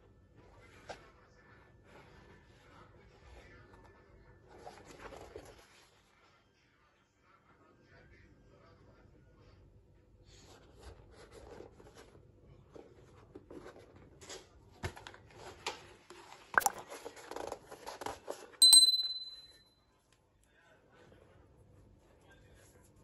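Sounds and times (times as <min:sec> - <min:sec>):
bright bell ding: 0:18.6 - 0:19.7.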